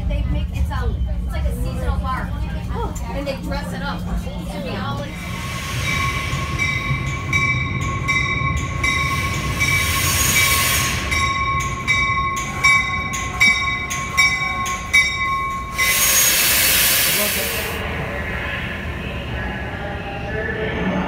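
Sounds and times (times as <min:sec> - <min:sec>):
train wheels squealing on rails: 0:05.1 - 0:17.8.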